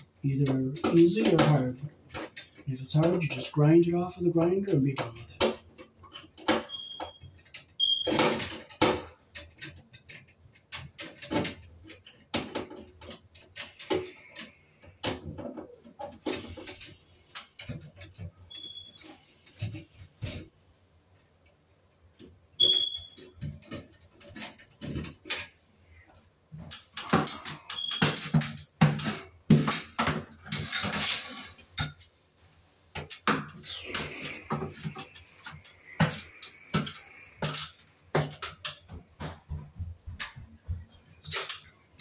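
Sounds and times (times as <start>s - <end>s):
metal tools clattering: 26.6s - 32.0s.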